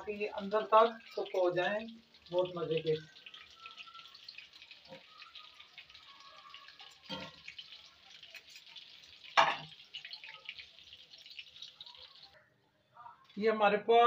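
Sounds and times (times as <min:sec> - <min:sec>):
chicken frying in oil: 0:00.0 - 0:12.4
metal spoon knocking pan: 0:09.3 - 0:09.8.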